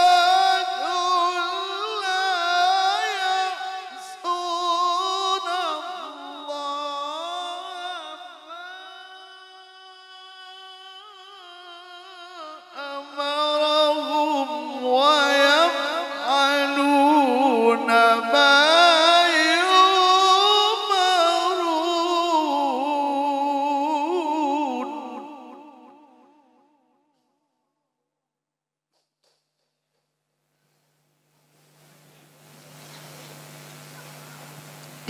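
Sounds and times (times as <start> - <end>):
man reciting melodically: 0.0 - 26.1.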